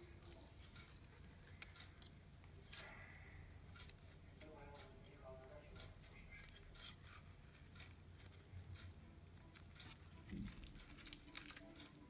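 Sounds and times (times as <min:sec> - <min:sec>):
wrapping film rustling: 0:00.0 - 0:02.9, 0:06.0 - 0:12.0.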